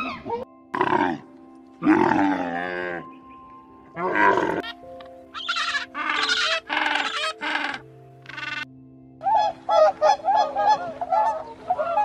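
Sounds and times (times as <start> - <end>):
background music: 0.0 - 12.0
camel calling: 4.0 - 12.0
short high animal calls: 5.4 - 8.6.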